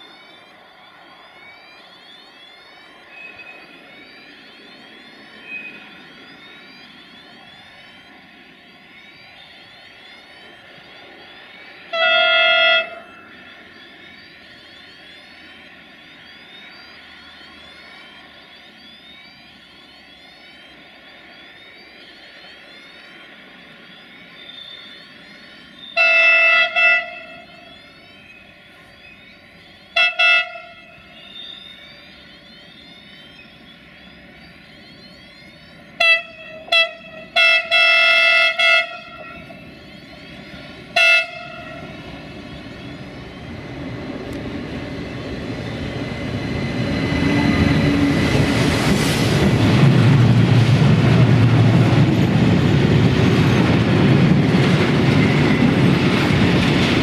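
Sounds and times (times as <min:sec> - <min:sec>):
train running: 0:00.0 - 0:57.0
locomotive horn blasts: 0:11.9 - 0:13.2, 0:26.0 - 0:27.8, 0:29.9 - 0:31.2, 0:36.0 - 0:39.7, 0:40.9 - 0:42.1.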